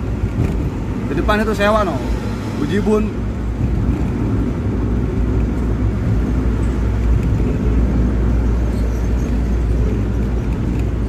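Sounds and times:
engine and tyre rumble: 0.0 - 11.0.

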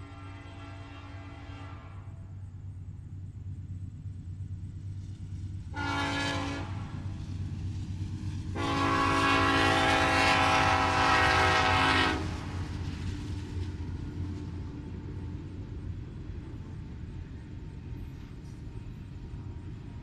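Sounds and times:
locomotive air horn blasts: 0.0 - 2.2, 5.7 - 7.0, 8.5 - 12.6
locomotive low rumble: 0.0 - 20.0.

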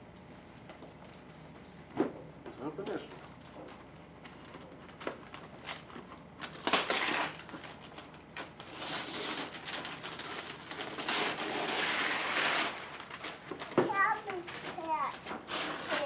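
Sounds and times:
paper rustling: 4.2 - 16.0
wrapping paper tearing: 4.4 - 16.0.

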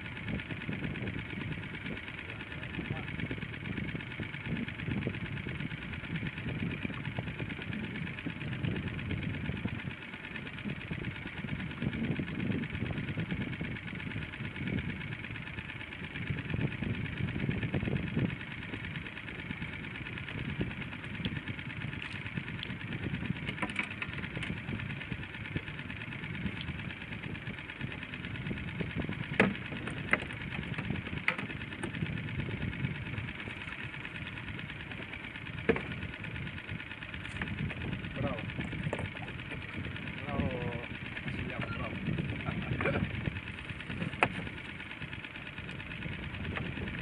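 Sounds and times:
boat engine idling: 0.0 - 47.0.

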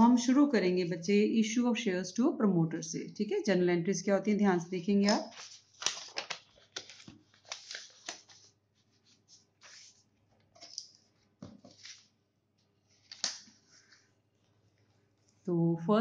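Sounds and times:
paper rustling: 5.0 - 12.2, 12.8 - 15.4.

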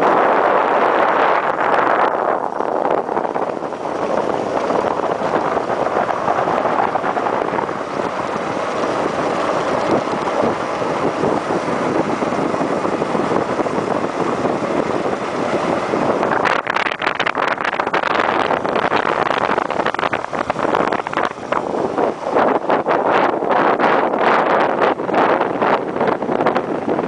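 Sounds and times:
motorcycle engine: 0.0 - 27.0
road noise: 0.0 - 27.0
wind rushing over microphone: 0.0 - 27.0.

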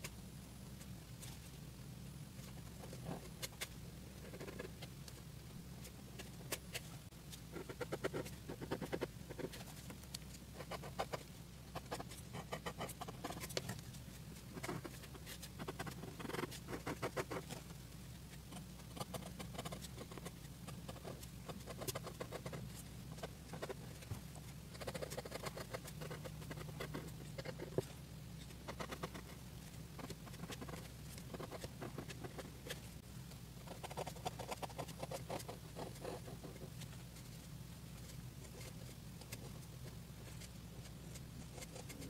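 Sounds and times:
pen scratching on paper: 4.2 - 4.7, 7.5 - 9.7, 10.6 - 13.8, 14.5 - 17.6, 18.5 - 24.1, 24.7 - 27.9, 28.6 - 29.4, 30.0 - 32.9, 33.6 - 36.9, 40.2 - 42.0.

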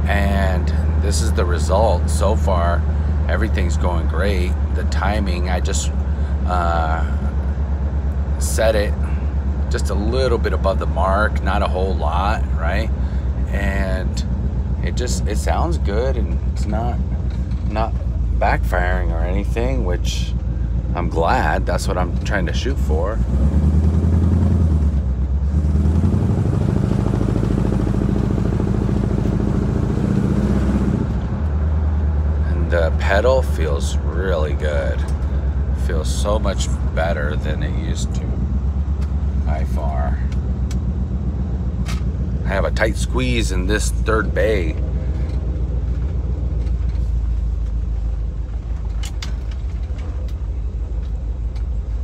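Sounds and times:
car engine running: 0.0 - 52.0.

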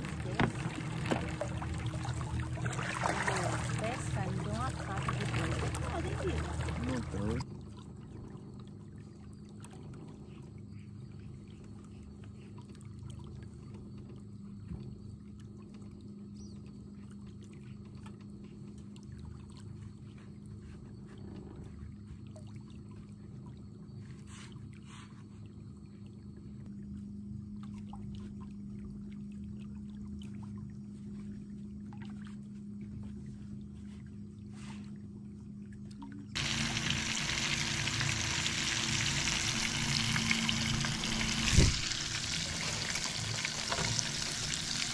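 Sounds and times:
low hum: 0.0 - 7.5, 26.4 - 44.9
faint ticks and scrapes: 17.1 - 26.1, 39.0 - 44.9
fish frying in hot oil: 36.4 - 44.9.

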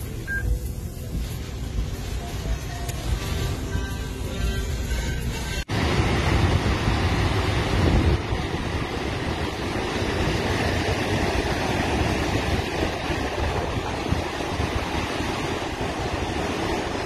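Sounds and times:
storm surf breaking: 5.7 - 17.0
wind rumbling over microphone: 5.7 - 17.0.

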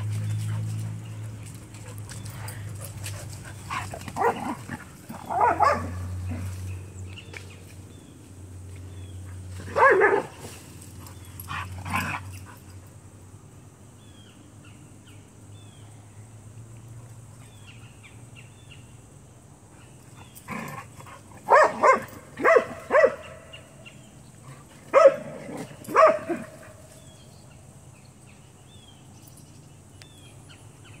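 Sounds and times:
dog barking in play: 4.1 - 6.5, 9.6 - 10.5, 21.4 - 23.5, 24.9 - 26.8.

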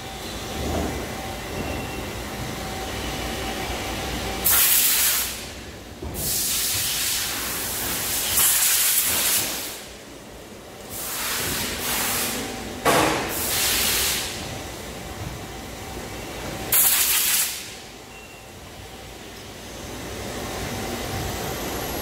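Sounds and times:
machines humming: 0.0 - 8.3, 9.8 - 16.8, 17.6 - 22.0.

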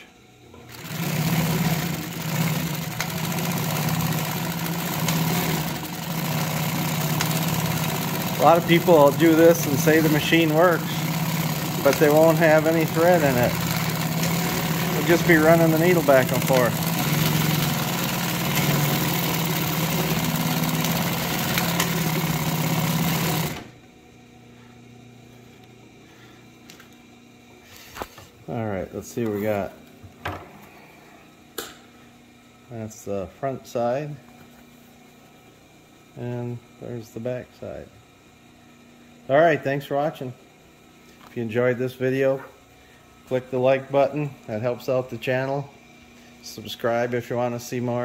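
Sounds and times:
faint motor hum: 0.0 - 48.0
sewing machine running: 0.7 - 23.8.

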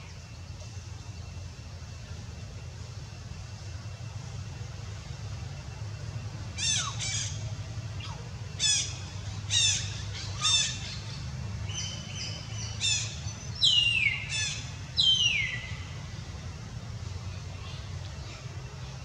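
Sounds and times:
steady low rumble: 0.0 - 19.0
bird squawks: 6.6 - 7.4, 8.0 - 11.2.

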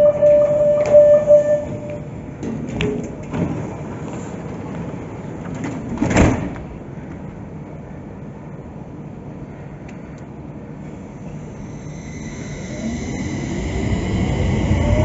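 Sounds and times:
sliding doors shutting with thump: 5.5 - 6.7.

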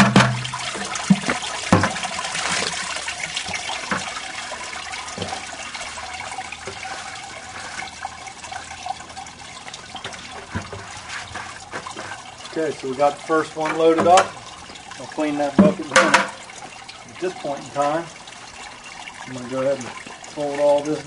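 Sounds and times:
knocks: 0.0 - 2.0
juice pouring and trickling: 0.0 - 21.0.

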